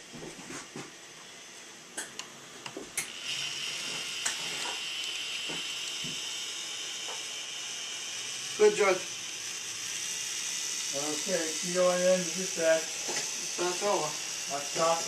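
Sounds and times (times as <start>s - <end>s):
small electric motor whine: 0.0s - 15.0s.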